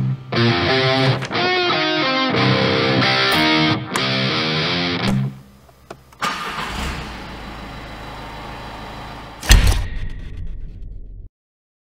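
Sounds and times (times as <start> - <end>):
steady low hum: 4.1 - 11.3
car engine firing and idling: 5.7 - 11.3.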